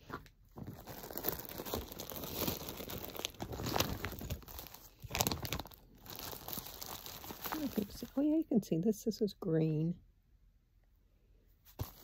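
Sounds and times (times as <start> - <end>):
plastic packaging crinkling: 0.5 - 8.4, 11.7 - 12.0.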